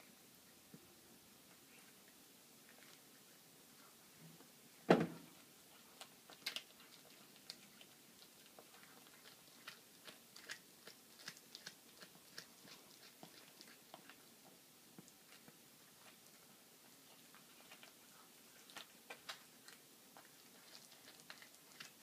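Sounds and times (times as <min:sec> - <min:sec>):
loud thump: 0:04.9 - 0:05.3
cat crunching small bones: 0:06.0 - 0:14.2, 0:17.1 - 0:22.0.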